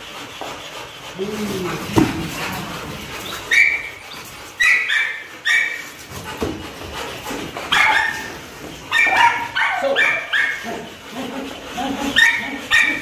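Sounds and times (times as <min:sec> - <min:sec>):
dog barking and yipping: 0:01.9 - 0:06.5, 0:07.6 - 0:13.0.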